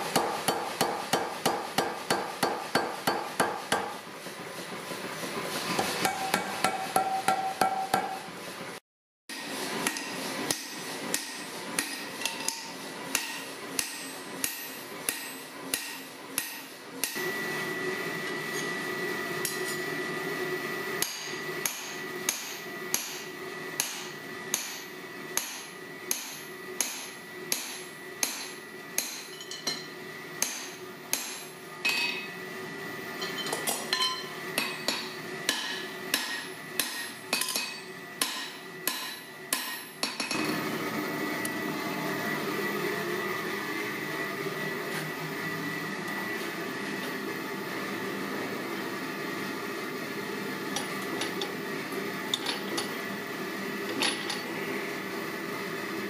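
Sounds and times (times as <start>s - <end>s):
hammer striking punch on anvil: 0.1s - 4.0s, 6.0s - 8.2s, 9.3s - 17.2s, 21.0s - 32.3s, 33.8s - 40.4s.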